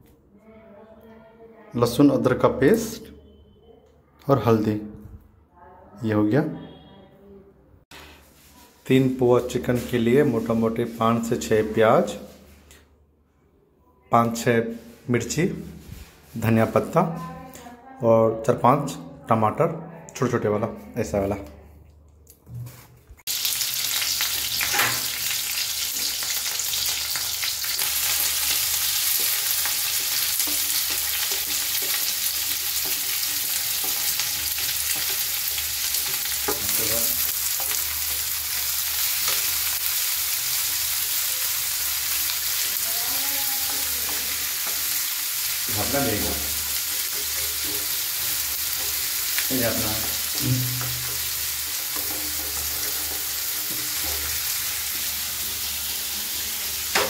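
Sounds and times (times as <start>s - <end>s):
oil sizzling in a wok: 23.2s - 57.0s
stirring scrapes: 27.7s - 39.6s, 46.4s - 55.7s.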